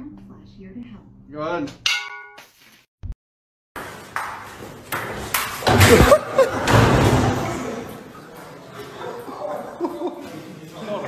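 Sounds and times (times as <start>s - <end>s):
knocks and clatter of crash: 3.8s - 7.9s
person falling onto hard floor: 5.0s - 7.4s.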